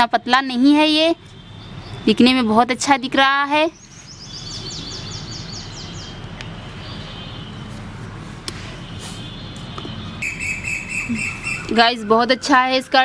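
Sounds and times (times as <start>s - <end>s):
small bird chirping: 3.7s - 6.2s, 10.2s - 11.9s.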